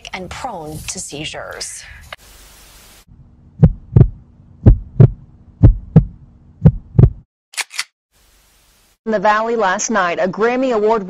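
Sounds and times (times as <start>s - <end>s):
low steady hum: 3.1s - 7.2s
heartbeat: 3.5s - 7.3s.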